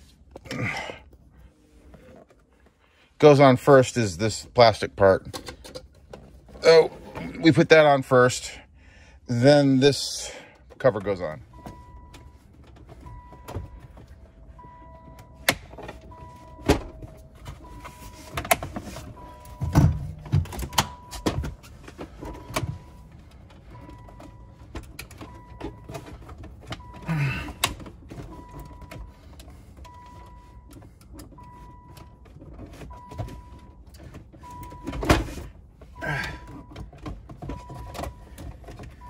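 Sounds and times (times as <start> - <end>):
car warning chime beeping: 9.3 - 39.0.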